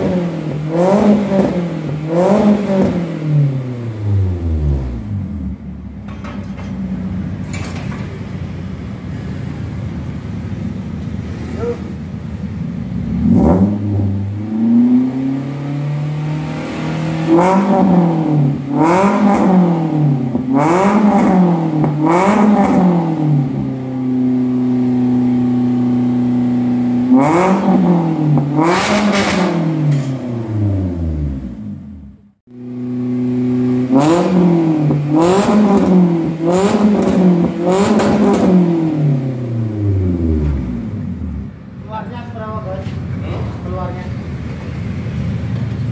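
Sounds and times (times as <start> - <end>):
car engine idling: 0.0 - 14.6, 39.2 - 45.9
car engine revving: 0.0 - 41.8.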